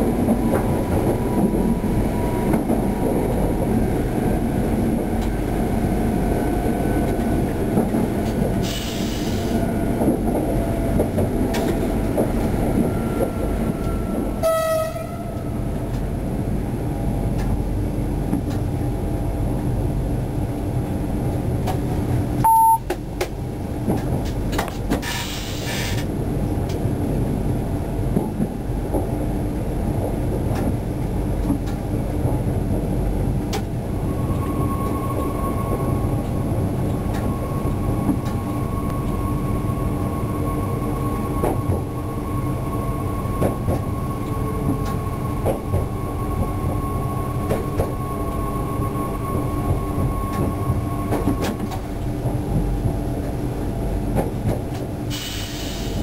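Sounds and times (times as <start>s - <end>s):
train running low rumble: 0.0s - 56.0s
faint clicks from rails: 5.0s - 5.4s, 7.0s - 12.5s, 15.3s - 16.1s, 17.3s - 17.6s, 18.2s - 18.8s, 21.3s - 26.9s, 30.0s - 32.4s, 33.4s - 33.7s, 35.7s - 37.4s, 38.0s - 39.2s, 43.4s - 46.5s, 47.4s - 48.0s, 50.3s - 53.4s, 54.1s - 56.0s
short loud beep: 22.4s - 22.9s
brief hiss: 55.1s - 56.0s.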